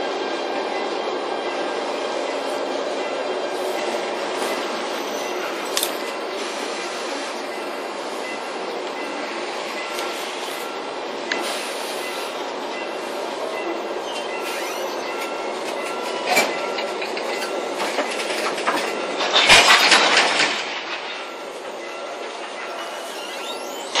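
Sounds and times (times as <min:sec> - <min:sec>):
train wheels rumbling on track: 0:00.0 - 0:24.0
clickety-clack at rail joints: 0:07.4 - 0:24.0.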